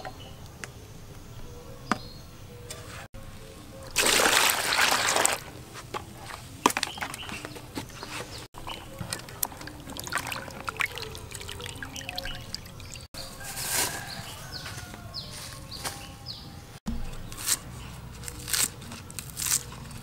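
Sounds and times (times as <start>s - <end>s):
water splashing and sloshing: 3.9s - 13.1s
water pouring into plastic bowl: 4.0s - 5.5s, 8.6s - 13.0s.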